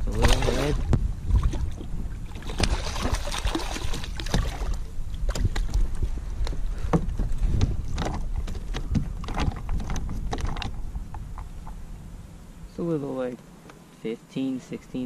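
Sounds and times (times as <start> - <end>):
fish thumping against kayak hull: 0.0 - 10.8
fish splashing at water surface: 2.3 - 5.7.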